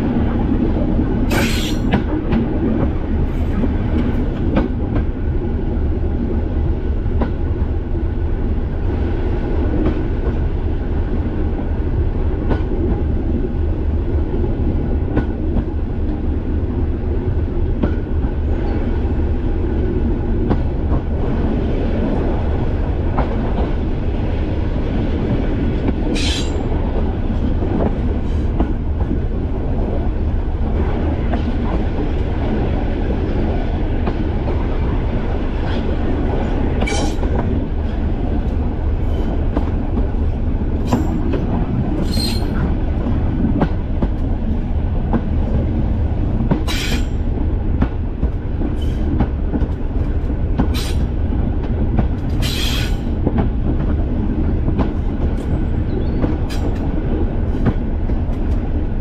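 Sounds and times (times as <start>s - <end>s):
diesel train rumbling: 0.0s - 59.0s
wheels squeaking on rails: 26.1s - 26.7s, 36.8s - 38.0s, 42.0s - 42.7s, 46.6s - 47.2s, 48.8s - 49.1s, 50.7s - 51.1s, 52.3s - 53.2s.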